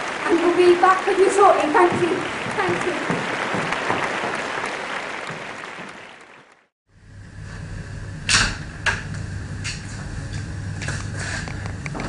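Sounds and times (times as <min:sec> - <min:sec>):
applause: 0:00.0 - 0:06.7.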